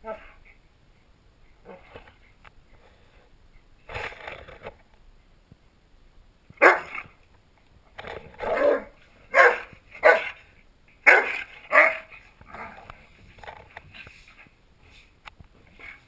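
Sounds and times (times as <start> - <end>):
dogs barking: 6.6 - 7.0, 8.5 - 10.4, 11.0 - 12.1.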